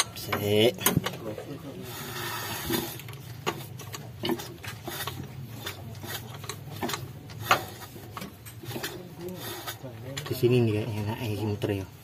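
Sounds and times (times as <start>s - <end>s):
metallic engine clicks and clunks: 0.0s - 1.6s, 2.7s - 10.7s.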